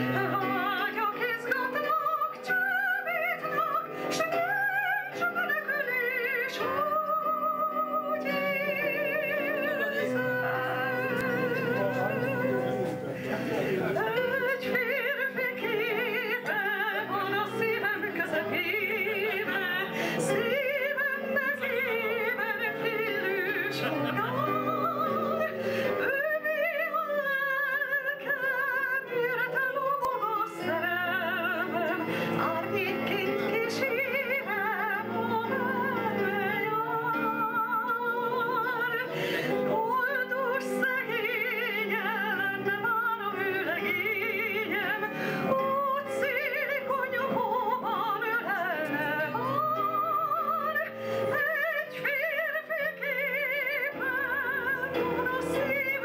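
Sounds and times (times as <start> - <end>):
woman singing with vibrato: 0.0 - 13.0, 13.8 - 56.0
instrumental accompaniment: 0.0 - 56.0.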